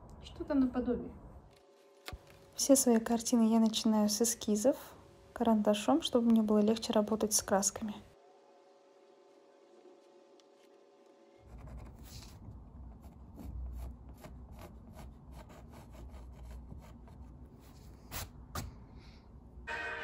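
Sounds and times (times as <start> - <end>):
faint steady hum: 0.0 - 19.8
pencil scratching on canvas: 11.4 - 18.4.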